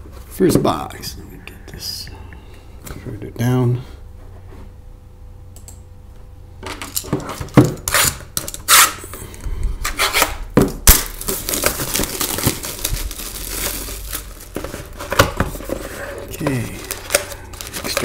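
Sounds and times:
plastic wrap ripping: 0:10.2 - 0:15.7, 0:16.3 - 0:18.0
plastic wrap crinkling: 0:10.8 - 0:18.0.

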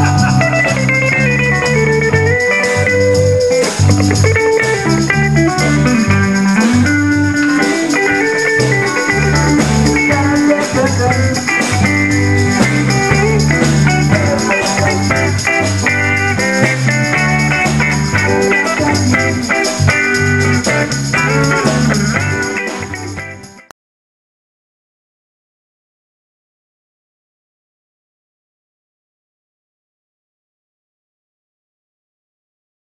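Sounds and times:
bass line: 0:00.0 - 0:23.6
drums: 0:00.0 - 0:23.7
electric guitars: 0:00.0 - 0:23.7.

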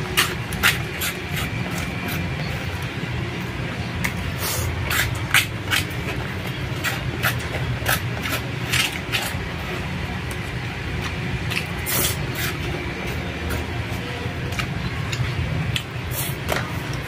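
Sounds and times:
plastic spoon scraping paperboard box: 0:00.0 - 0:02.7, 0:04.3 - 0:09.5
steady low hum: 0:00.0 - 0:17.0.

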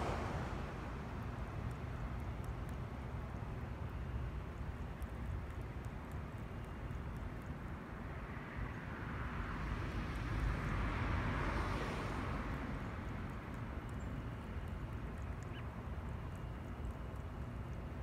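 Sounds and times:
faint small ticks: 0:01.5 - 0:08.9, 0:12.8 - 0:18.0.

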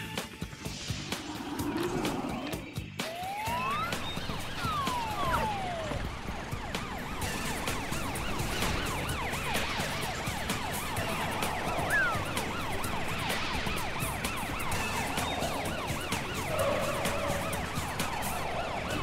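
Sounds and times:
steady low rumble: 0:00.4 - 0:03.0
cartoon sirens wailing: 0:01.0 - 0:19.0.

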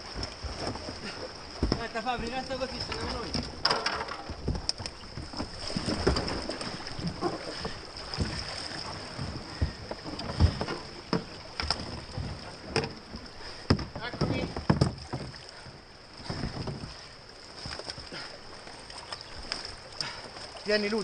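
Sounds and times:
kayak knocking against rock: 0:00.0 - 0:15.6
river flowing: 0:00.0 - 0:21.0.

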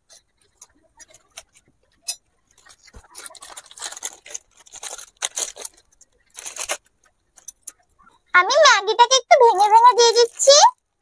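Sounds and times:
dry noodles crinkling in plastic packet: 0:02.5 - 0:07.8, 0:09.4 - 0:10.9.

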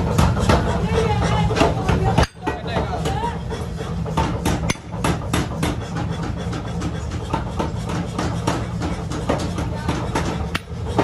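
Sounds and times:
hammer striking steel: 0:01.6 - 0:02.6, 0:04.1 - 0:06.1.

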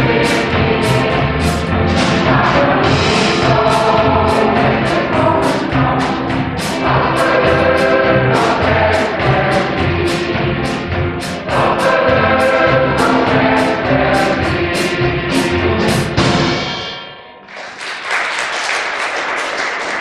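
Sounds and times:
accordions: 0:00.0 - 0:16.3
choir singing: 0:00.0 - 0:16.5
steady drum beat: 0:00.0 - 0:16.8
audience applauding: 0:17.4 - 0:20.0.

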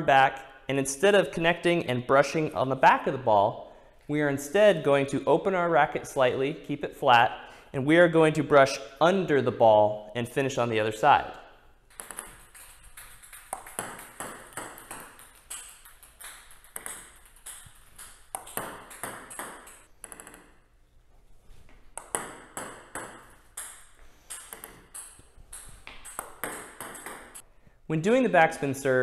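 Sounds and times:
table tennis balls pinging: 0:11.1 - 0:27.4.

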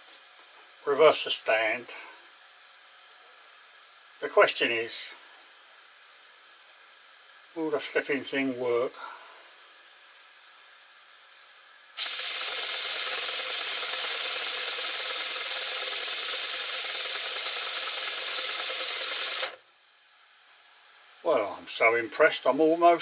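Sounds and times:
compressed air hissing: 0:12.0 - 0:19.6.

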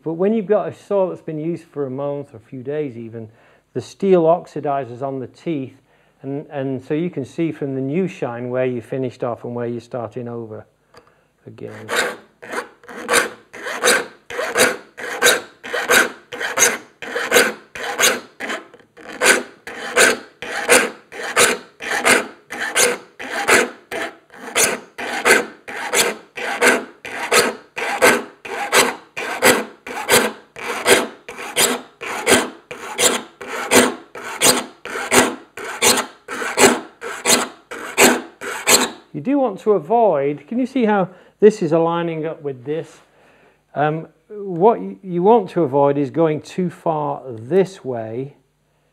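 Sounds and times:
file rasping on saw teeth: 0:11.6 - 0:39.0.

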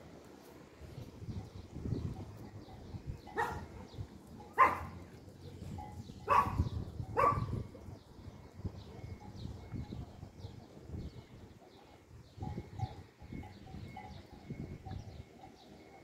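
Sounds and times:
dog barking: 0:03.4 - 0:04.0, 0:04.6 - 0:05.0, 0:06.2 - 0:07.6.

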